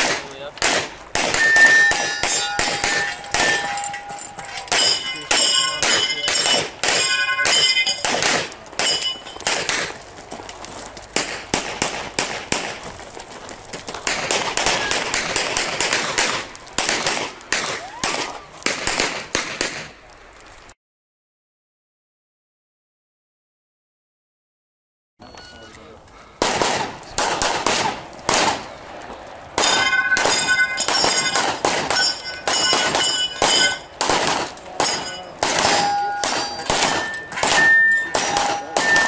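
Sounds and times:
bullets ringing on steel targets: 0:00.0 - 0:10.0, 0:14.0 - 0:18.4, 0:25.2 - 0:39.0
pistol shots: 0:00.0 - 0:10.0, 0:11.2 - 0:12.9, 0:13.8 - 0:20.0, 0:26.4 - 0:28.7, 0:29.6 - 0:39.0.

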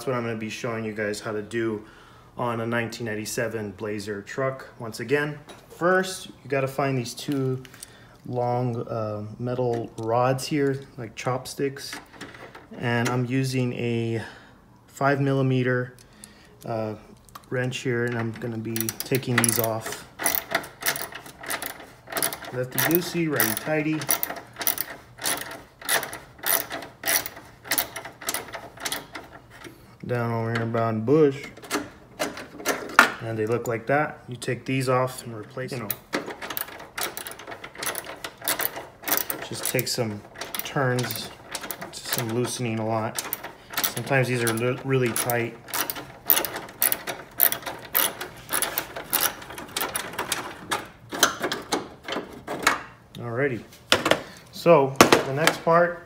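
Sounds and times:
ratchet wrench clicking: 0:18.8 - 0:29.4, 0:36.1 - 0:50.5.

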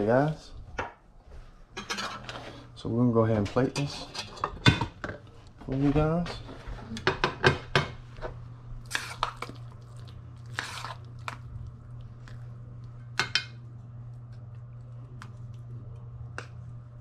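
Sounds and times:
steady low hum: 0:00.0 - 0:17.0
spoon scraping saucepan: 0:01.8 - 0:02.6.

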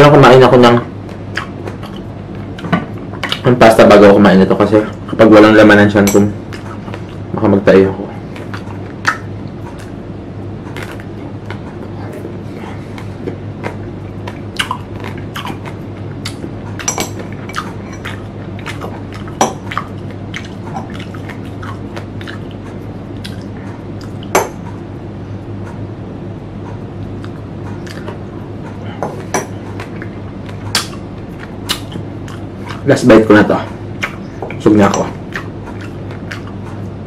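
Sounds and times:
chewing crunches and mouth clicks: 0:01.2 - 0:03.5, 0:08.3 - 0:10.0, 0:10.6 - 0:24.8, 0:26.8 - 0:33.0, 0:33.6 - 0:37.0.

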